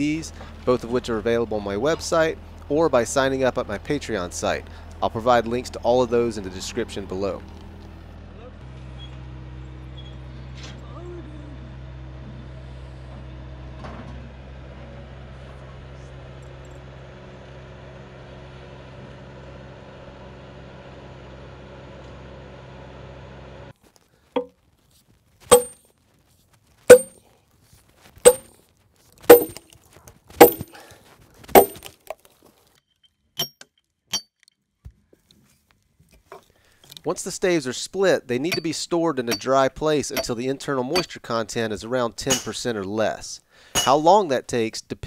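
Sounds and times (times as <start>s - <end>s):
low engine hum: 0.0s - 23.7s
hammer striking steel wedge: 25.5s - 25.8s, 26.9s - 27.2s, 28.3s - 28.5s, 29.3s - 29.6s, 30.4s - 30.8s, 31.6s - 31.9s, 40.2s - 40.4s, 43.8s - 44.0s.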